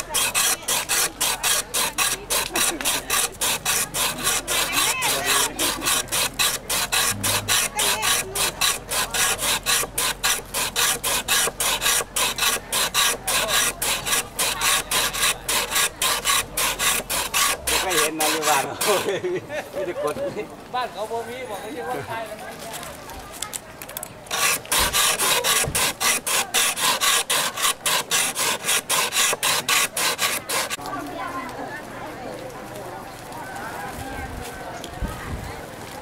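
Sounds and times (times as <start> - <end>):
ice rasping on shaver: 0.0 - 19.2, 24.3 - 30.8.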